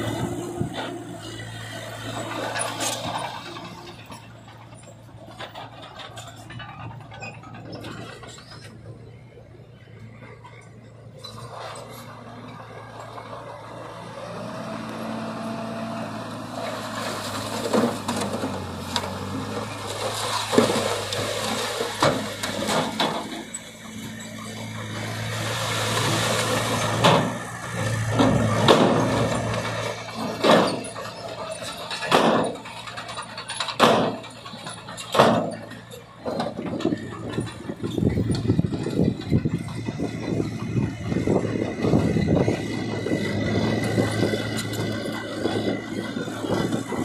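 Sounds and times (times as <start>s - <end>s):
dump truck engine running: 0.0s - 47.0s
soil and rocks sliding out: 14.3s - 47.0s.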